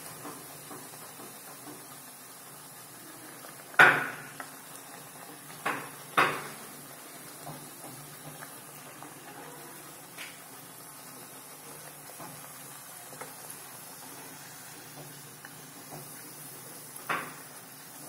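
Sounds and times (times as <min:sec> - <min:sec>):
oil sizzling: 0:00.0 - 0:18.0.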